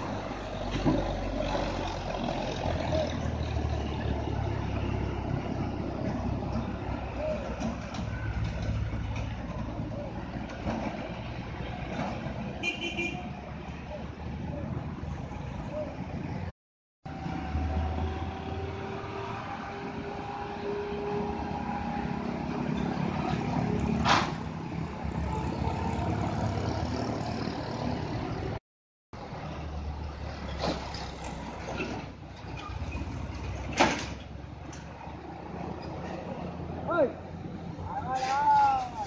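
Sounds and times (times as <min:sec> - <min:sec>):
truck engines climbing: 0:00.0 - 0:28.6, 0:29.2 - 0:39.0
motorcycles passing: 0:17.2 - 0:28.6.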